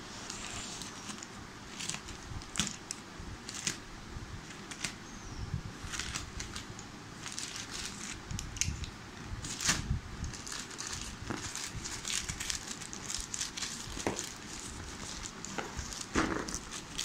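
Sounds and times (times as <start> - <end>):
plastic bag crinkling and tearing: 5.8 - 8.2, 9.4 - 17.0.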